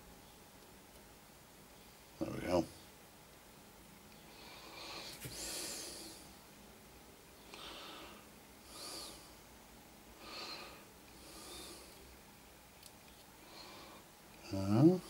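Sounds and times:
man breathing through nose: 4.3s - 6.3s, 7.5s - 9.3s, 10.2s - 12.1s, 13.4s - 14.1s.

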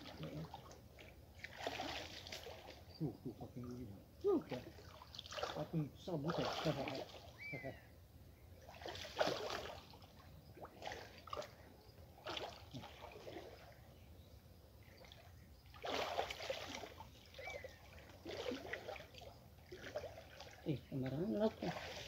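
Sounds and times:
muddy water sloshing and splashing: 0.0s - 7.8s, 8.6s - 14.0s, 14.8s - 22.0s.

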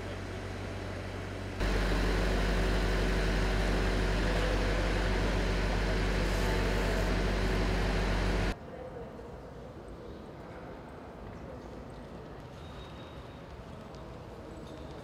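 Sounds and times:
boom lift motor humming: 0.0s - 8.6s.

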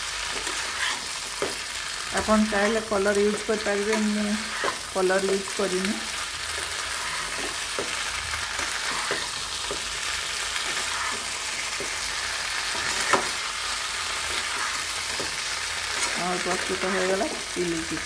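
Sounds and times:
chicken sizzling in a pan: 0.0s - 18.0s
spatula scraping pan: 0.2s - 5.5s, 6.1s - 17.0s.

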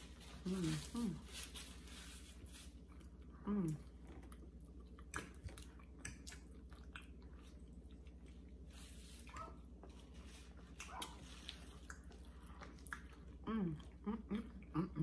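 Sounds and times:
chewing and wet mouth sounds: 2.4s - 14.9s
person humming: 13.5s - 15.0s.

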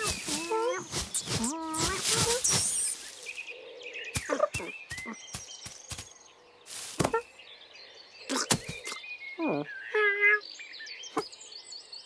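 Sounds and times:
rustle: 0.0s - 7.6s
high insect or bird chirps: 0.0s - 12.0s.

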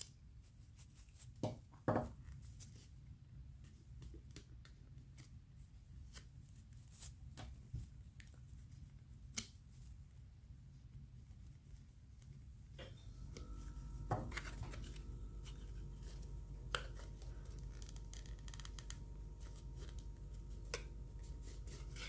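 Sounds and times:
low steady hum: 7.9s - 22.0s.

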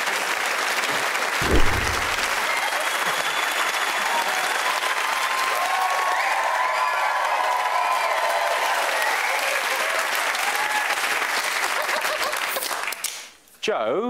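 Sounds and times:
audience applauding: 0.0s - 13.2s
short low thump: 1.4s - 2.4s.

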